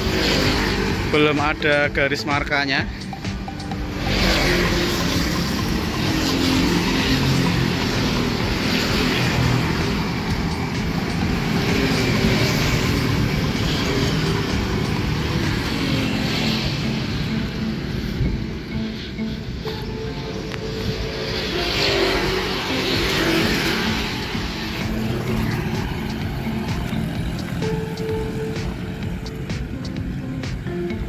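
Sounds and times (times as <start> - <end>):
motorcycles riding past: 0.0 - 19.4, 20.1 - 31.0.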